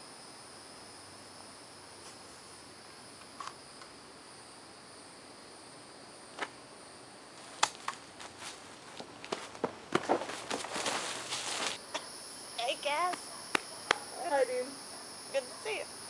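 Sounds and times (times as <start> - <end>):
crickets chirring: 0.0 - 16.0
footsteps crunching on dry leaves: 7.4 - 11.8.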